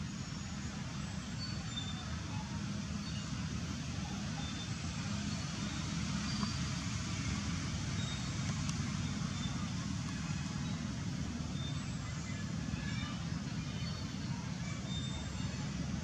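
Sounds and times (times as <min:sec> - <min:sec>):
road traffic rumble: 0:00.0 - 0:16.0
faint high chirps: 0:07.9 - 0:15.8.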